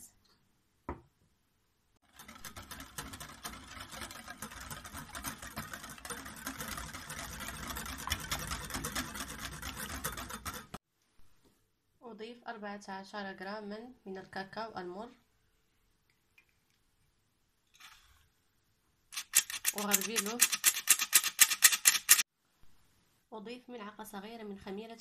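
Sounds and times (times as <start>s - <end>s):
whisk beating batter in glass bowl: 2.0s - 10.8s, 19.2s - 22.2s.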